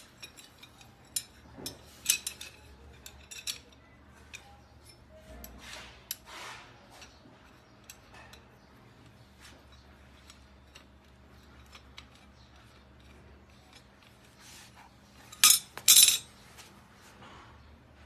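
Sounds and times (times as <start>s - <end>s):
metal parts clicking: 0.0s - 6.3s, 7.0s - 8.6s, 9.6s - 14.4s, 15.1s - 16.3s
metal frame clanking on concrete: 15.2s - 16.4s.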